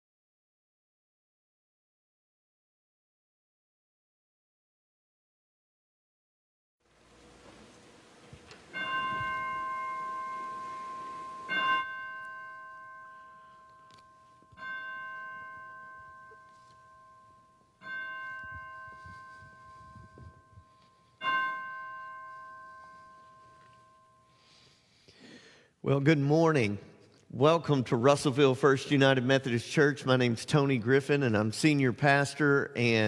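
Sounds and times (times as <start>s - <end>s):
bell tolling: 8.7s - 24.8s.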